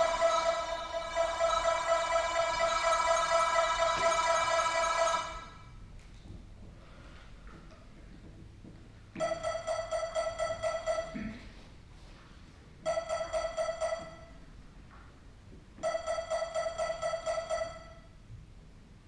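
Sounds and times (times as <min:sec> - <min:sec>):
electronic metronome beeps: 0:00.0 - 0:05.6, 0:09.2 - 0:11.3, 0:12.8 - 0:14.4, 0:15.8 - 0:18.2.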